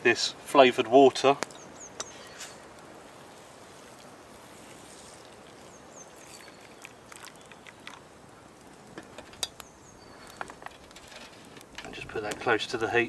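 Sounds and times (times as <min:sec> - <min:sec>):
water pouring into metal pan: 0:03.9 - 0:08.1.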